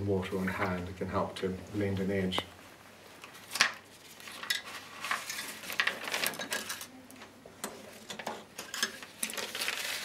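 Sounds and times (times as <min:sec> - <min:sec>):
tissue rustling and crumpling: 0:03.4 - 0:06.9, 0:09.0 - 0:10.0.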